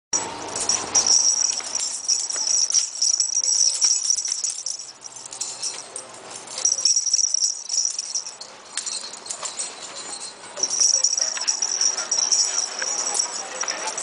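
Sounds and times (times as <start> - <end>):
collar jingling: 0.2 - 14.0
light scuffling and clicks: 8.0 - 14.0.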